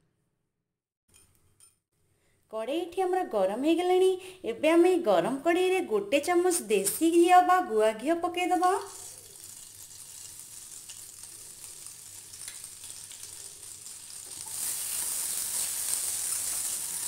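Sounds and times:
ghee sizzling in a pan: 0:08.8 - 0:17.0.

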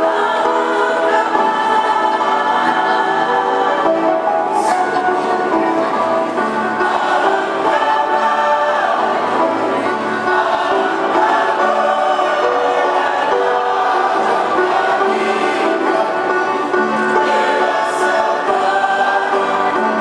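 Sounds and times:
mixed choir singing: 0:00.0 - 0:20.0.

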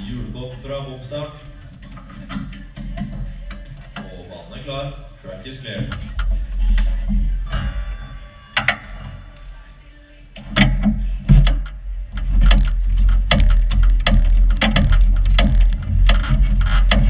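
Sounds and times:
wheels rumbling on concrete: 0:11.0 - 0:17.0
knocks: 0:12.4 - 0:17.0.

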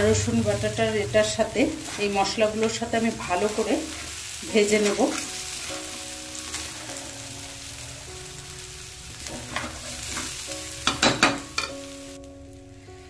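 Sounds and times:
rice sizzling in oil: 0:00.0 - 0:13.0
spatula scraping rice in a wok: 0:06.4 - 0:07.8.

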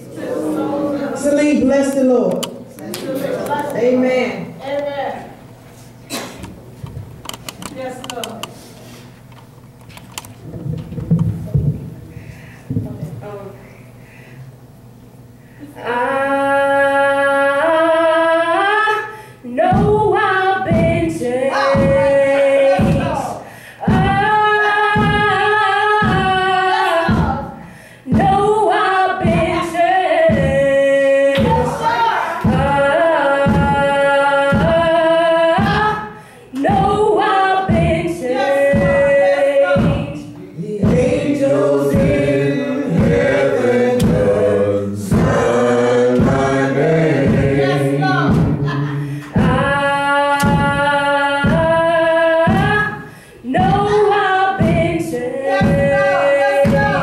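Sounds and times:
woman singing gospel song: 0:15.7 - 0:57.0
steady beat accompaniment: 0:19.6 - 0:57.0.

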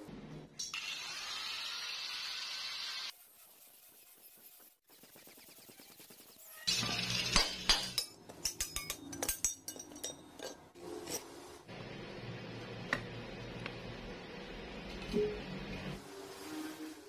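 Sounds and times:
hammer striking steel plate: 0:07.3 - 0:10.2.

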